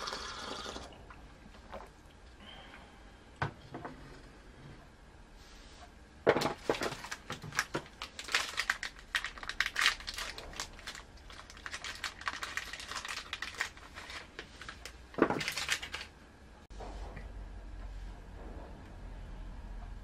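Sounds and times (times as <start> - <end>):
paper crinkling and rustling: 6.3 - 16.1.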